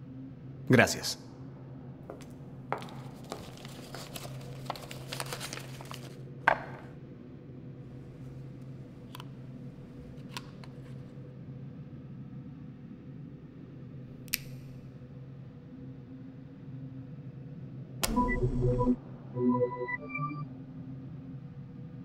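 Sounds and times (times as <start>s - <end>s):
paper crinkling and tearing: 2.8s - 6.2s.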